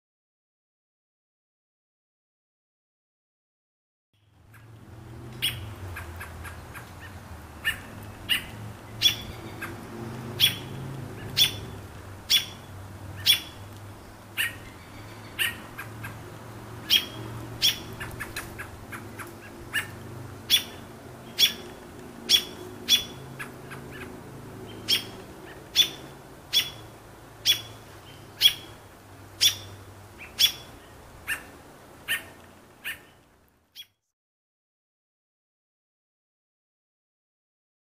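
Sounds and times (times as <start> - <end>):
robin alarm calls: 5.4 - 34.0.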